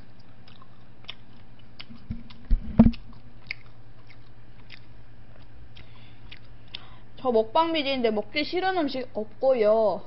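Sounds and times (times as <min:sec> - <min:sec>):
wet chewing mouth clicks: 0:00.0 - 0:06.9
low thumps: 0:02.1 - 0:03.1.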